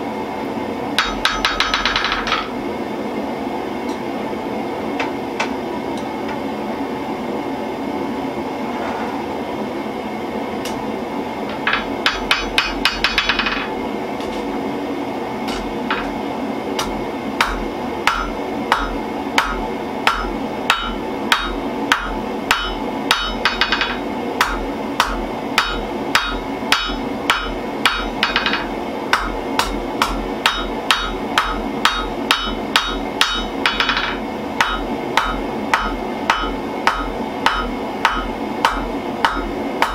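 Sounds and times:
gas forge roaring: 0.0 - 39.9
hammer striking hot steel on anvil: 1.0 - 2.6, 11.5 - 14.4, 15.4 - 16.2, 16.8 - 39.9.

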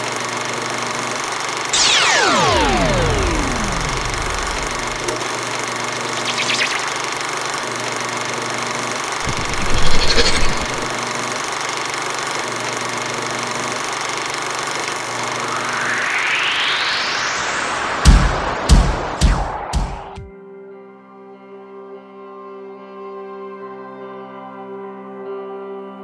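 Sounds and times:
machine-like buzzing drone: 0.0 - 20.2
loud electronic burst: 1.8 - 7.8, 9.2 - 11.0, 14.8 - 20.3
rising electronic sweep: 1.8 - 7.8, 9.2 - 11.0, 14.8 - 20.3.

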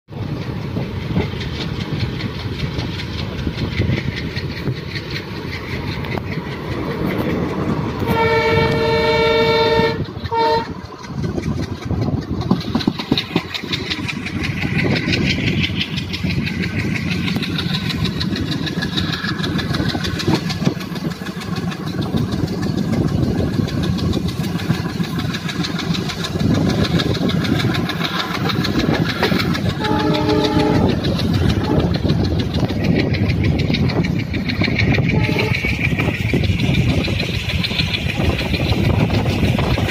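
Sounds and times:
train wheels rumbling on rails: 0.1 - 39.9
locomotive horn: 8.0 - 10.9, 29.8 - 32.0, 35.0 - 35.7.

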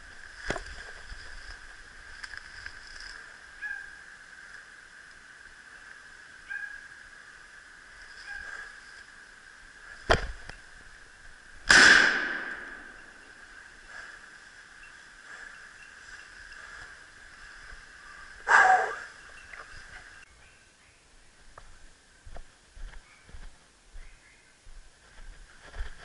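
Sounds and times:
echoing rifle shot: 11.6 - 13.4
sharp crack: 11.6 - 13.4.

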